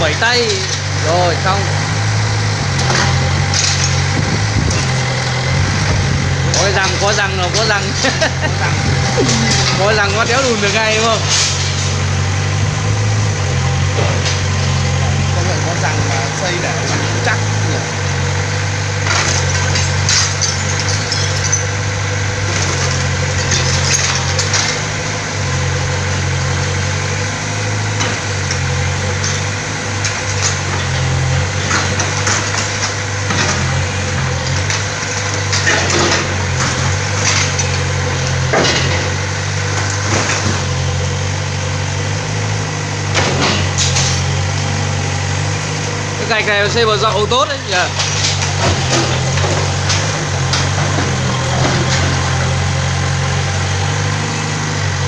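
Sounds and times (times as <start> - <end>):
diesel engine running: 0.0 - 55.0
bricks crashing and clattering: 19.0 - 21.8.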